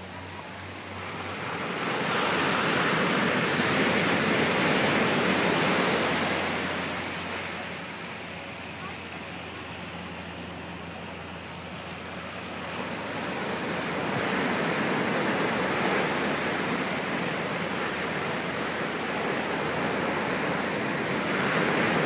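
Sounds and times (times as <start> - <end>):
ocean surf breaking: 0.0 - 22.0.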